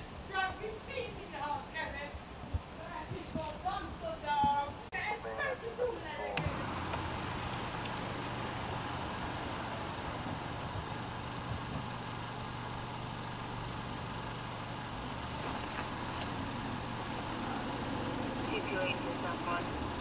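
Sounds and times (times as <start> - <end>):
street noise: 0.0 - 20.0
car engine running: 6.4 - 20.0.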